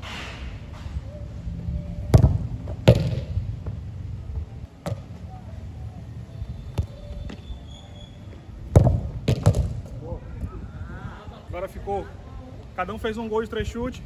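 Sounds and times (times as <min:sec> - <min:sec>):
football being kicked: 0:02.1 - 0:03.8, 0:04.8 - 0:05.2, 0:06.7 - 0:07.4, 0:08.7 - 0:10.0.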